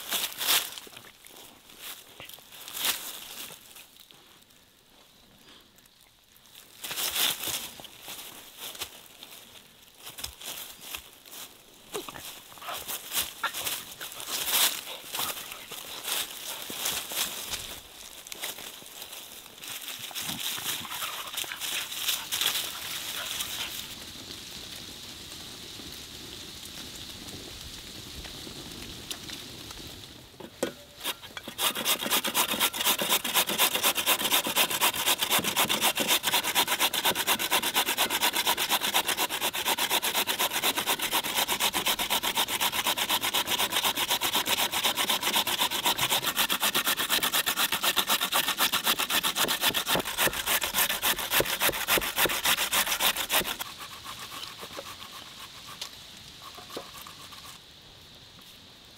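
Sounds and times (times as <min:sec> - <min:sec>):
potato grated on metal grater: 0:31.0 - 0:55.6.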